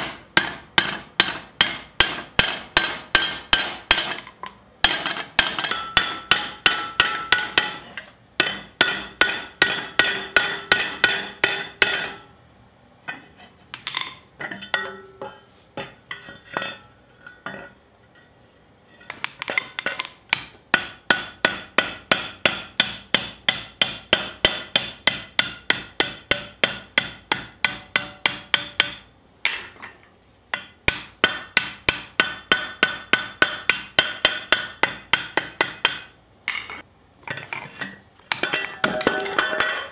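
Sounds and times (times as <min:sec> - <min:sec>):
hammer ringing on hot steel: 0:00.0 - 0:12.4, 0:19.9 - 0:29.1, 0:30.6 - 0:36.8.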